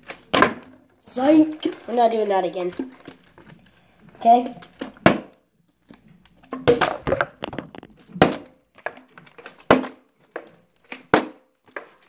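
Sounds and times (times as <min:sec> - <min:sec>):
plastic bottle knocking on floor: 0:06.7 - 0:08.4
light taps and handling: 0:06.9 - 0:08.0.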